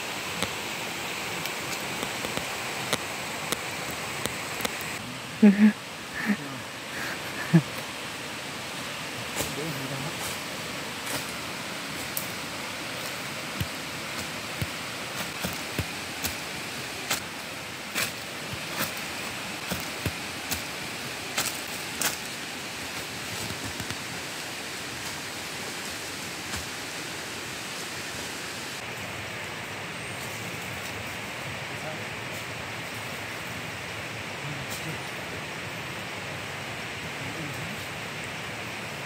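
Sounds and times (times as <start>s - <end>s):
background hiss: 0.0s - 39.0s
footsteps crunching on dry leaves: 13.1s - 24.0s.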